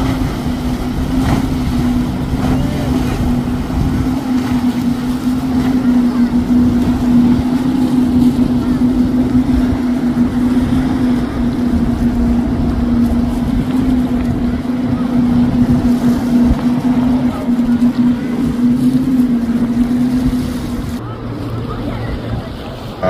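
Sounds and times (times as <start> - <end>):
motorboat engine drone: 0.0 - 23.0
wind and water rushing: 0.0 - 23.0.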